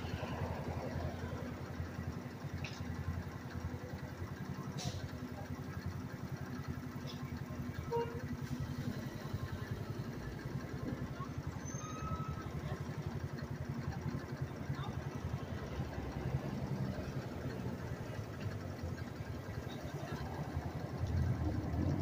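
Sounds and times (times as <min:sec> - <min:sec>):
small engine idling: 0:00.0 - 0:22.0.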